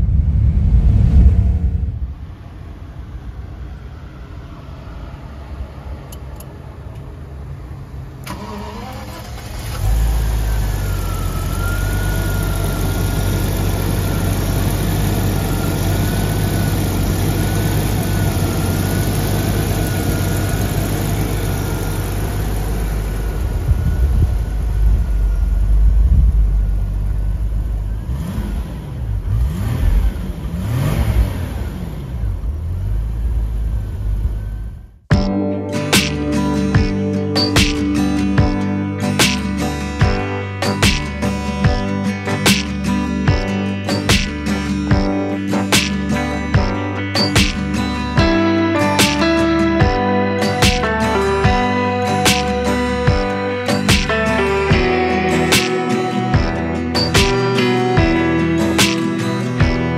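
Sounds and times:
car engine running and revving: 0:06.1 - 0:34.9
car starter cranking: 0:08.2 - 0:10.9.

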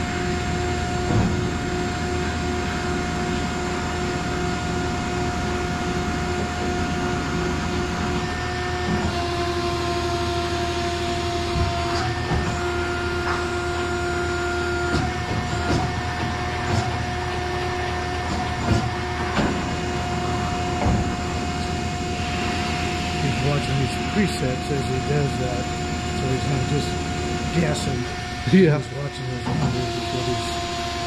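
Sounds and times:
machine hum and whine: 0:00.0 - 0:31.0.

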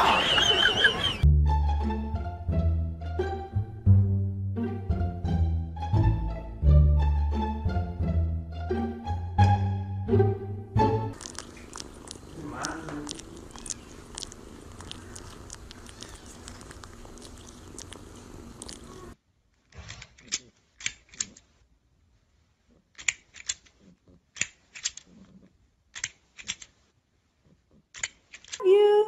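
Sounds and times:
plastic toy jaws clacking: 0:19.7 - 0:21.5, 0:22.9 - 0:26.8, 0:27.8 - 0:28.6.

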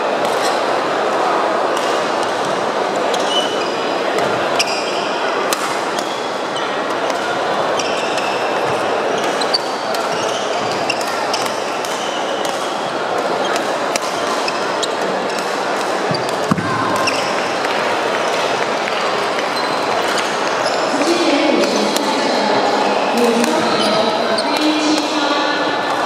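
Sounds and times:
background chatter in echoing hall: 0:00.0 - 0:26.0
shoes squeaking on wooden court: 0:03.1 - 0:05.1, 0:06.0 - 0:17.5, 0:19.4 - 0:22.1, 0:23.0 - 0:25.1.

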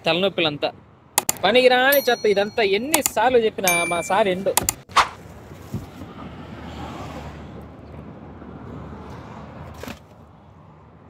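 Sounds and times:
vehicle passing on road: 0:05.2 - 0:11.0.

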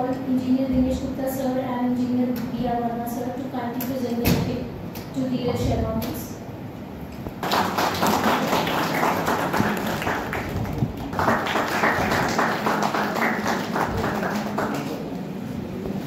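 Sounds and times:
audience applauding: 0:07.4 - 0:15.4.

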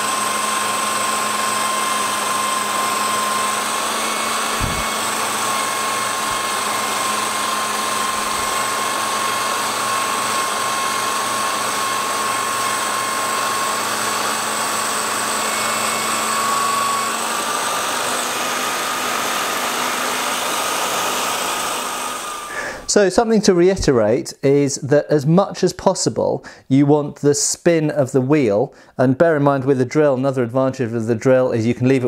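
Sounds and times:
electric drill whine: 0:00.0 - 0:22.9
polishing hiss: 0:02.3 - 0:19.3, 0:20.1 - 0:23.0.

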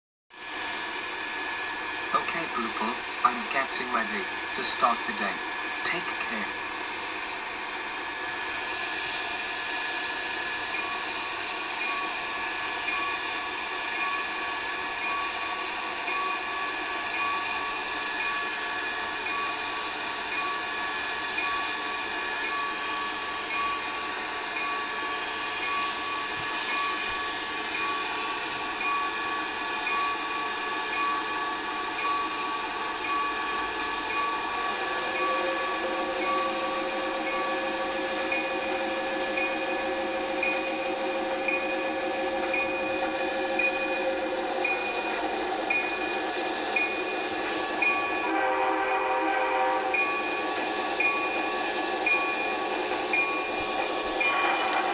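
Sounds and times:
small electric motor whining: 0:33.0 - 0:48.2.

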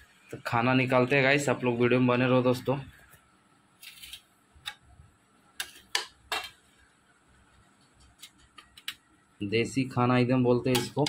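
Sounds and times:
spatula scraping and tapping metal: 0:05.6 - 0:06.8, 0:07.8 - 0:09.0, 0:10.7 - 0:11.0.

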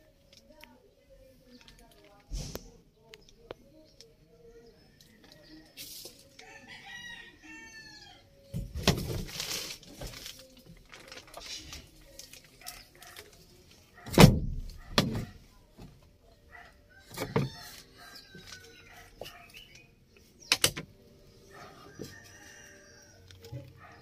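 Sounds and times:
rooster crowing: 0:06.4 - 0:08.2
rustling handling noise: 0:08.8 - 0:13.9.

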